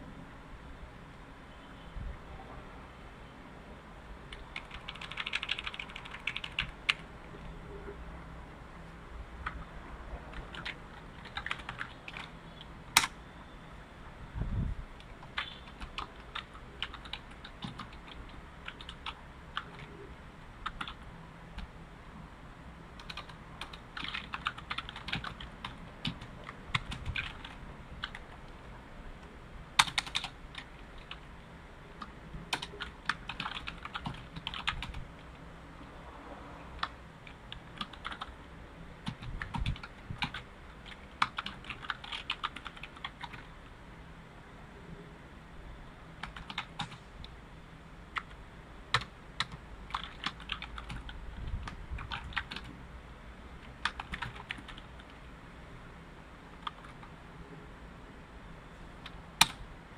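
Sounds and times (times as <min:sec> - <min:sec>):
typing on computer keyboard: 0:04.3 - 0:07.0, 0:10.3 - 0:13.2, 0:15.0 - 0:20.0, 0:20.6 - 0:21.0, 0:23.0 - 0:28.4, 0:29.8 - 0:31.2, 0:32.0 - 0:35.0, 0:36.8 - 0:38.3, 0:39.0 - 0:43.5, 0:46.2 - 0:47.0, 0:48.2 - 0:52.7, 0:53.6 - 0:55.1, 0:56.6 - 0:57.1.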